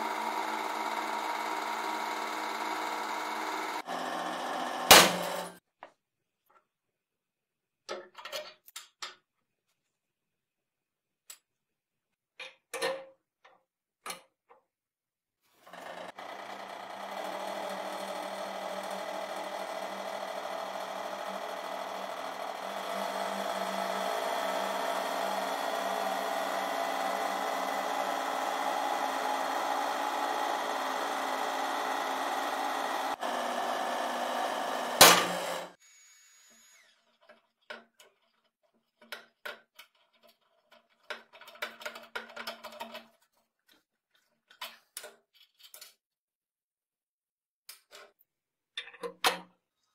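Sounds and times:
hydraulic press pump running: 0.0s - 5.6s, 15.6s - 37.0s.

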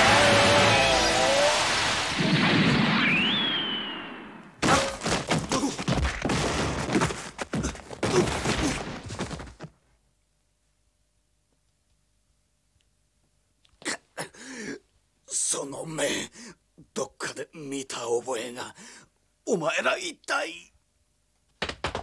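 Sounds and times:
rushing blast of noise: 0.0s - 4.5s
whistling tone: 3.0s - 4.4s
rapid crashing impacts: 4.6s - 9.6s.

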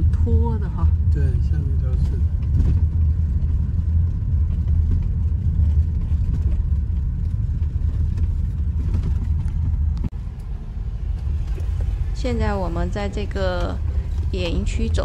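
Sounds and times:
car engine and road noise: 0.0s - 15.0s.

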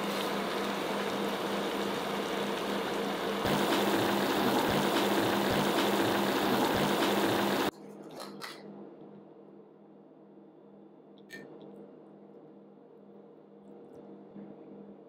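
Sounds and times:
steady hum: 0.0s - 7.7s.

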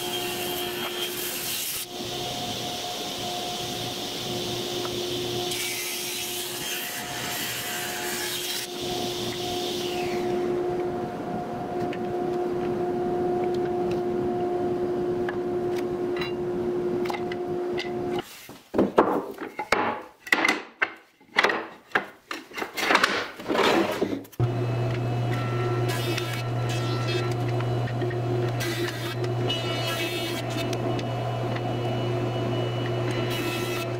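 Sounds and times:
table saw humming: 0.0s - 18.2s, 24.4s - 33.9s
wooden boards knocking and scraping: 18.7s - 24.2s
planer motor low hum: 24.4s - 33.9s.

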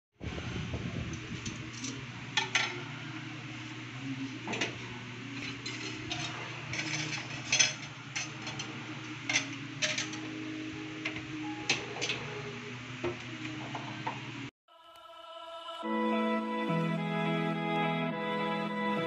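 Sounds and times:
steady low hum: 0.2s - 14.5s.

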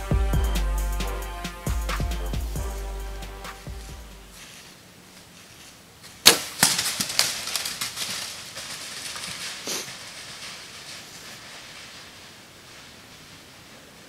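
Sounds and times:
deer running through dry leaves: 4.3s - 14.0s.

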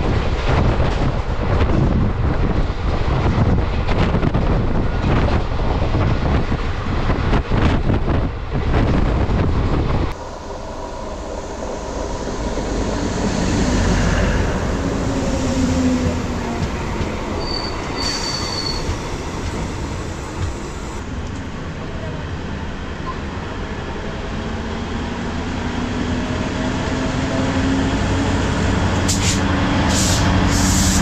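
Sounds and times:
train rushing clatter: 0.0s - 31.0s
train wheel squeal: 17.4s - 19.6s.

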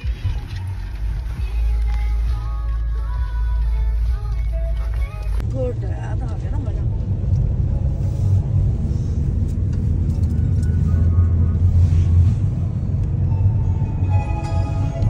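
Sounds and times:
faint music: 0.0s - 7.0s
car engine and road noise: 0.0s - 15.0s.

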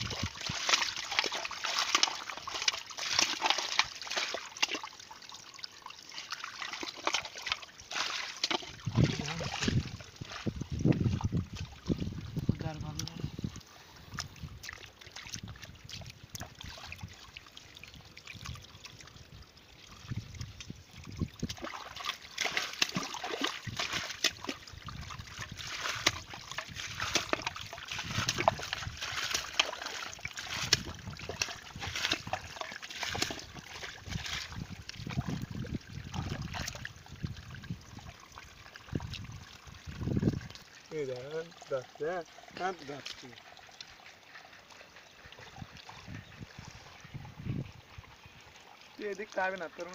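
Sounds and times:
splashing in muddy water: 0.0s - 47.2s.

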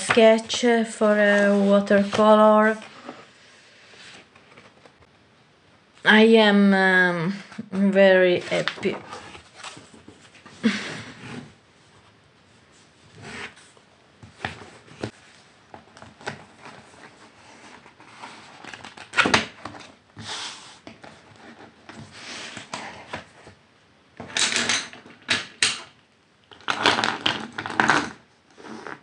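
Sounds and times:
rustling and sliding: 0.2s - 5.0s, 8.3s - 18.9s.

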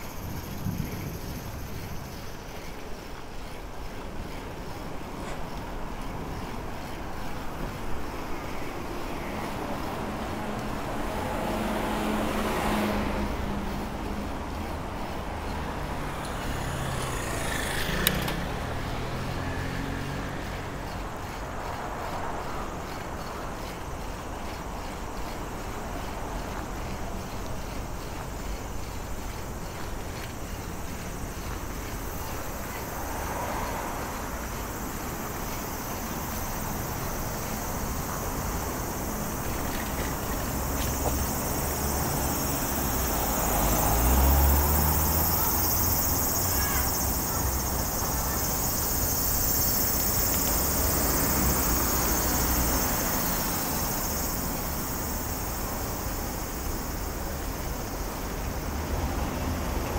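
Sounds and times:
outdoor street noise: 0.0s - 59.9s
motor vehicle passing: 0.1s - 59.9s.

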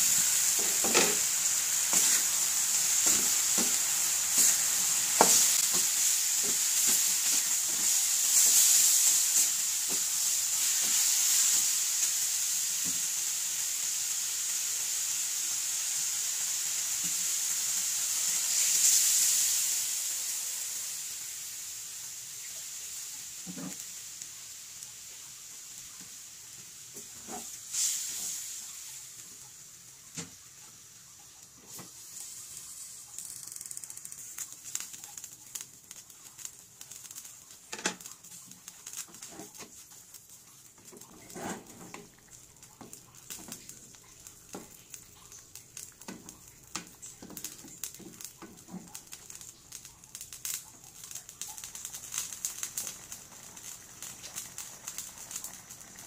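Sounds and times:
meat sizzling in a pan: 0.0s - 56.0s
wooden spoon scraping a pan: 1.9s - 9.0s, 27.0s - 27.9s, 39.1s - 39.8s, 41.0s - 42.1s.

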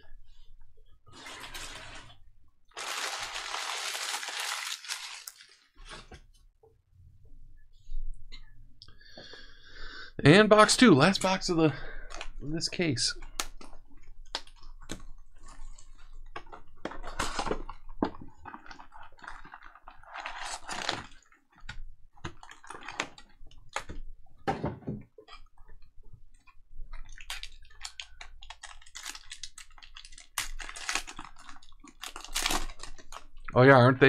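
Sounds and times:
cellophane wrap crinkling: 2.7s - 6.0s, 18.4s - 21.4s, 27.0s - 33.4s
foil packs rustling: 2.7s - 6.1s
foil pack tearing: 2.8s - 5.7s, 27.9s - 33.2s.

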